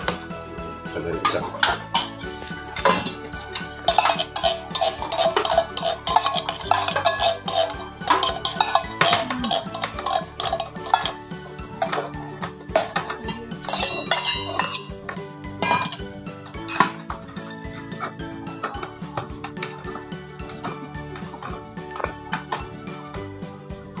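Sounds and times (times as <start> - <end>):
background music: 0.0 - 24.0
tin can knocking on colander: 1.2 - 11.2, 11.8 - 17.3.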